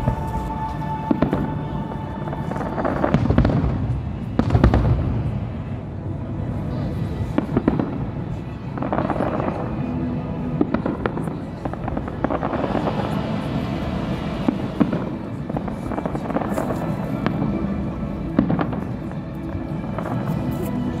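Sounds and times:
fireworks bursting: 0.0 - 5.6, 10.5 - 21.0
music: 0.0 - 21.0
steady low rumble: 0.0 - 21.0.

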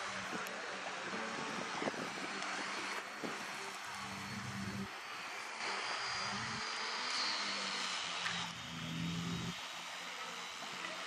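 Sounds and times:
low hum: 0.0 - 4.9, 7.6 - 9.7.

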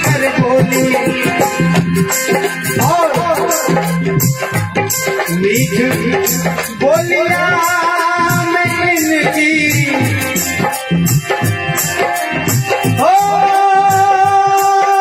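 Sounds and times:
devotional singing: 0.0 - 4.0, 12.5 - 15.0
tabla playing: 0.0 - 15.0.

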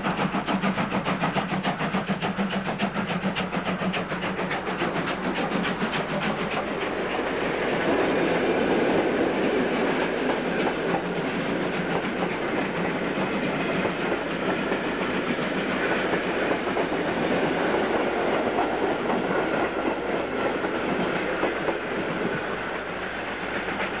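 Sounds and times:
steam locomotive beats: 0.0 - 24.0
train wheels clattering over rail joints: 0.0 - 24.0.

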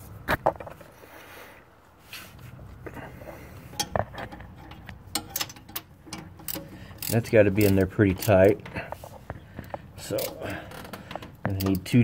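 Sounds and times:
wrench clinking on metal fittings: 3.7 - 8.9.

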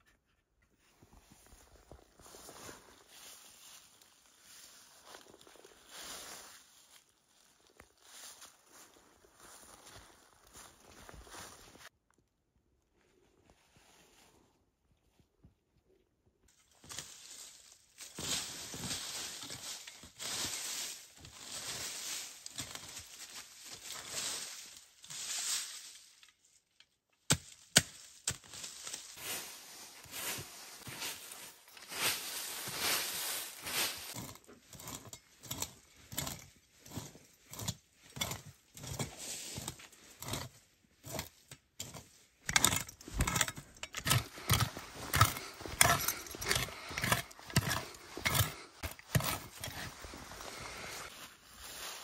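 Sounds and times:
dry leaves and fabric rustling: 16.6 - 26.5, 27.6 - 40.2, 42.0 - 52.0.

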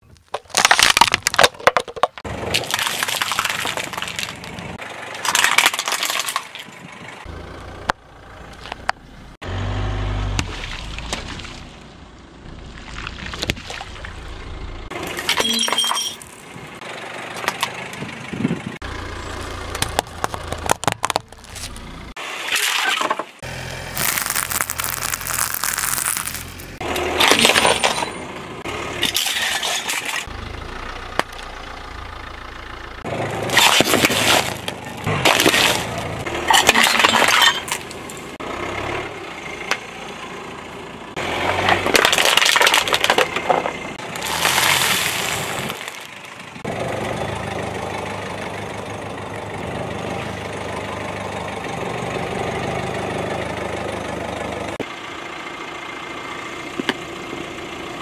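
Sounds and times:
tyre crushing objects: 0.0 - 4.7, 23.9 - 28.1, 33.4 - 37.9
low car rumble: 0.6 - 22.3, 23.3 - 58.0.

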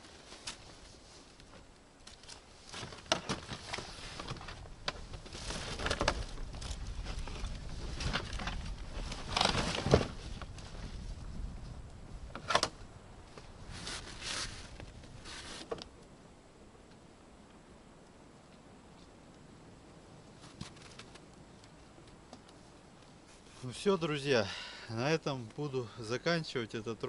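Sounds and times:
gear packed into plastic sled: 0.0 - 11.0, 13.7 - 15.9.

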